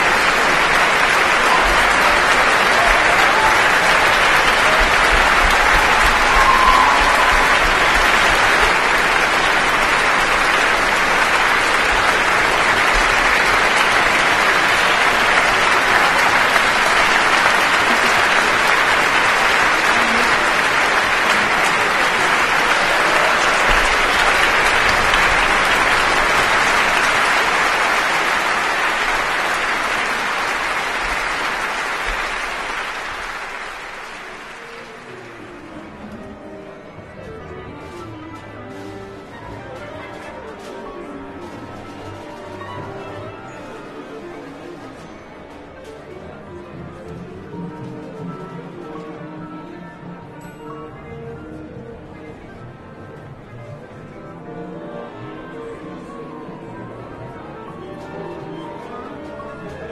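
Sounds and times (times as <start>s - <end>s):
audience applauding: 0.0s - 36.1s, 37.9s - 45.7s.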